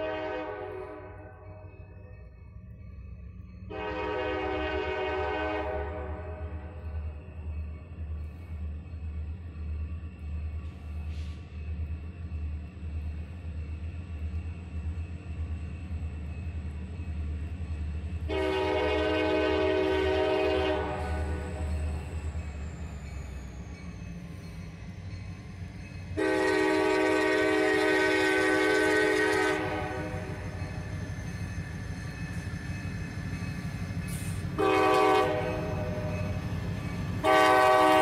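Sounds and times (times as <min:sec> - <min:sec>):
locomotive air horn blasts: 0:00.0 - 0:01.4, 0:03.7 - 0:06.7, 0:18.3 - 0:21.4, 0:26.2 - 0:30.4, 0:34.6 - 0:36.1, 0:37.2 - 0:38.0
low rumble of train: 0:00.0 - 0:38.0.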